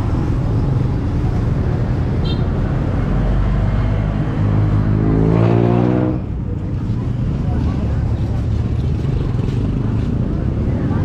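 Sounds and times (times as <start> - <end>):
traffic noise: 0.0 - 11.0
vehicle engine passing by: 3.0 - 6.3.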